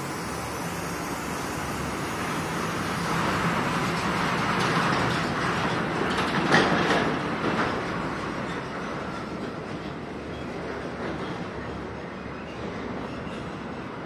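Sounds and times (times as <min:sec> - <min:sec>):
sprayer rumble and hiss: 0:00.0 - 0:05.1.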